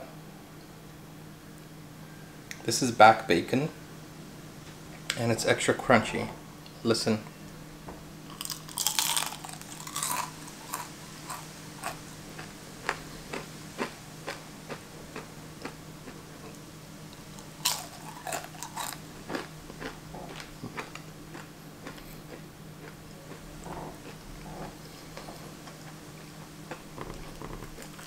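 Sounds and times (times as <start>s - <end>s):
faint steady hum: 0.0s - 28.0s
crunching bite of bacon: 8.3s - 16.6s, 17.2s - 25.8s, 26.6s - 28.0s
crisp chewing crunches: 8.3s - 28.0s.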